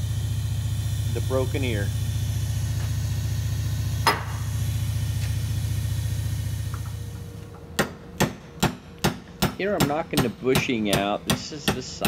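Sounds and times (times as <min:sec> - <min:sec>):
bench grinder running: 0:00.0 - 0:07.4.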